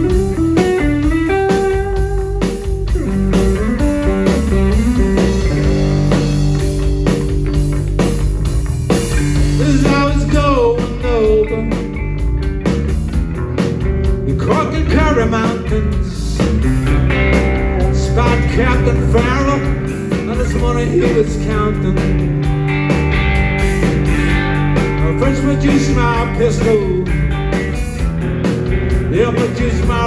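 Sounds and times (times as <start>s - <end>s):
live rock band playing: 0.0s - 30.0s
man singing lead vocals: 9.4s - 12.0s, 14.2s - 16.6s, 17.8s - 22.3s, 24.1s - 27.2s, 29.0s - 30.0s.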